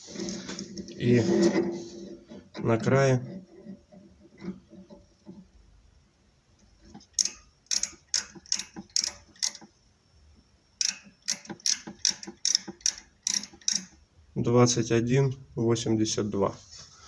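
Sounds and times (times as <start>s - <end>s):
micrometer ratchet clicking: 7.0s - 9.7s, 10.8s - 14.0s.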